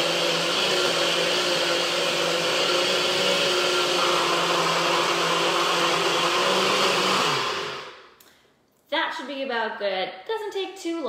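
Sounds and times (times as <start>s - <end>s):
blender motor running: 0.0s - 8.0s.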